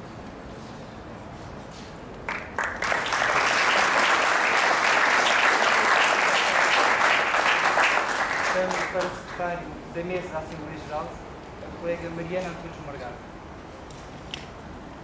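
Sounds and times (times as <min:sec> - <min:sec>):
audience applauding: 0:02.3 - 0:09.4.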